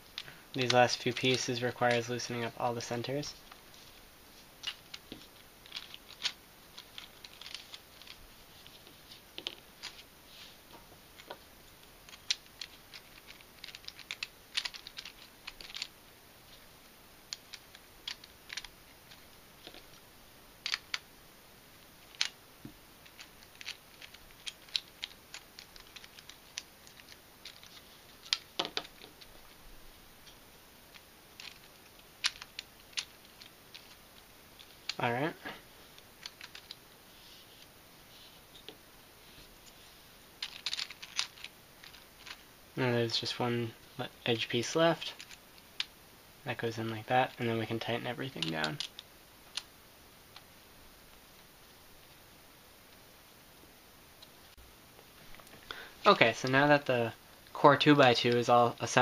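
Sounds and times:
plastic puzzle pieces clicking: 4.6s - 8.2s, 12.1s - 15.9s, 17.3s - 20.0s, 20.6s - 21.0s, 22.1s - 22.4s, 23.0s - 29.2s, 30.9s - 34.0s, 36.2s - 36.8s, 40.4s - 42.4s.

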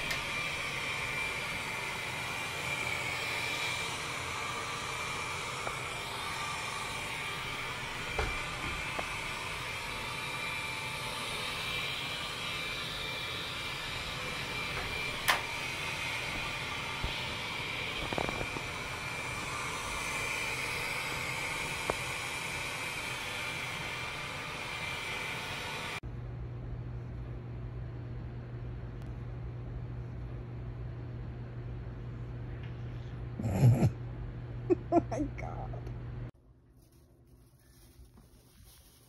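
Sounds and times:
robot vacuum cleaner whirring: 0.0s - 26.0s.

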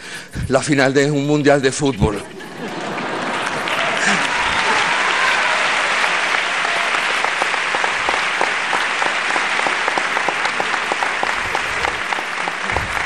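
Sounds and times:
audience applauding: 2.3s - 13.0s.

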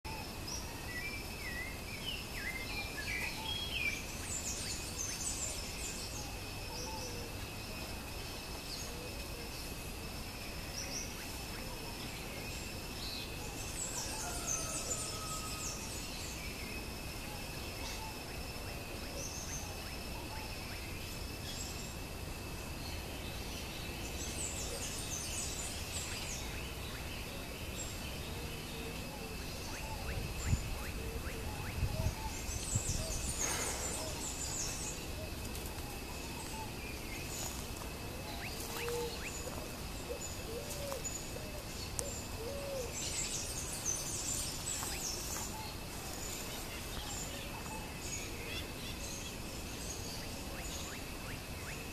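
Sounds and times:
birds chirping: 22.9s - 51.9s.

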